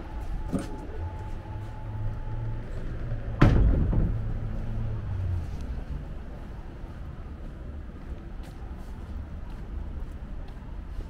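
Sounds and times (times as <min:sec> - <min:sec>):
loud ringing knock: 0:03.4 - 0:04.4.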